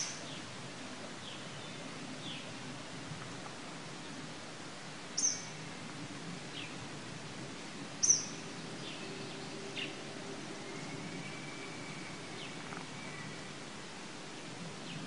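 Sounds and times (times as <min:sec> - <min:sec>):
background hiss: 0:00.0 - 0:15.0
birds chirping: 0:05.2 - 0:05.6, 0:08.0 - 0:13.4
thin steady whistle: 0:10.6 - 0:12.5.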